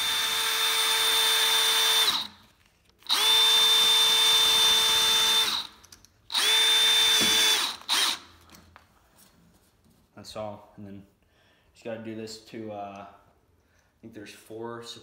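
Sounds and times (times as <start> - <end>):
cordless drill whirring: 0.0 - 8.6.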